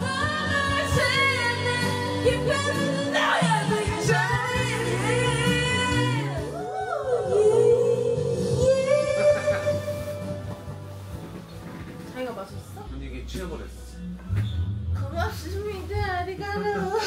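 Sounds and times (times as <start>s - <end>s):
person singing: 0.0s - 10.6s
instrumental backing track: 0.0s - 17.0s.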